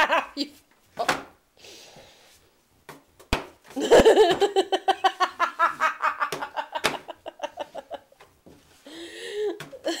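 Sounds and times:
dough slapping on wooden table: 2.9 - 4.5, 5.6 - 7.2.

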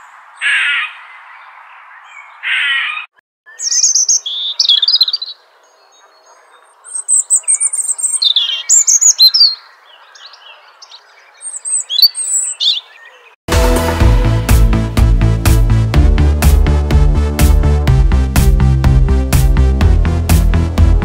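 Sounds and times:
robin singing: 0.0 - 13.4
squirrel harsh call: 0.4 - 1.0, 2.4 - 5.3.

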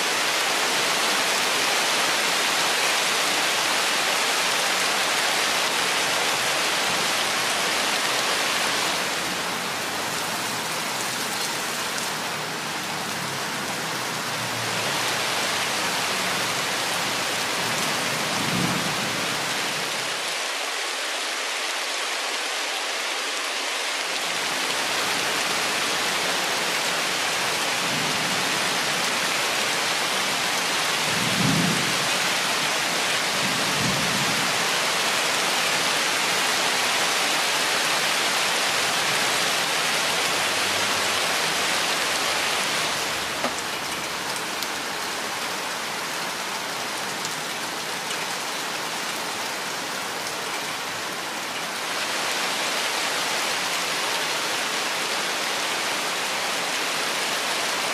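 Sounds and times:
heavy rain in forest: 0.0 - 57.9.

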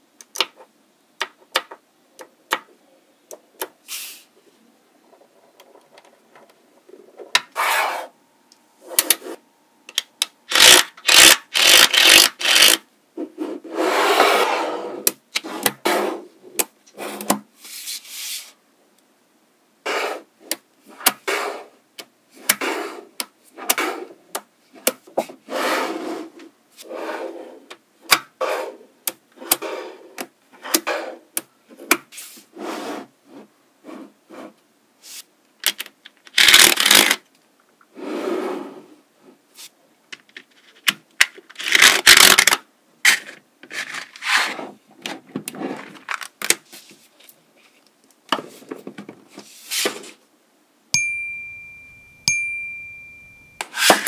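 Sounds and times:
card scraping across balls: 7.3 - 8.2, 41.6 - 47.8, 48.4 - 50.2.

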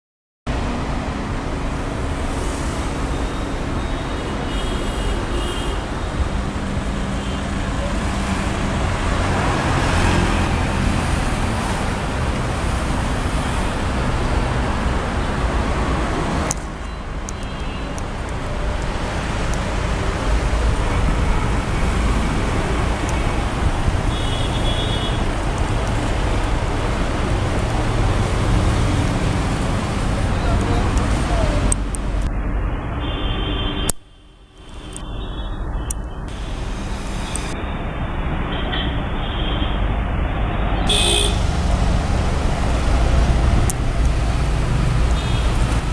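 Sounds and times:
road noise: 0.5 - 45.9
car engines running and idling: 5.9 - 32.7, 39.8 - 45.9.

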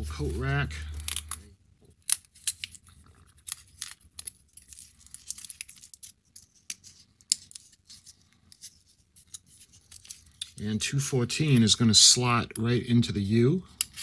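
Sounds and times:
foam board pieces clicking and rustling: 1.0 - 10.4.

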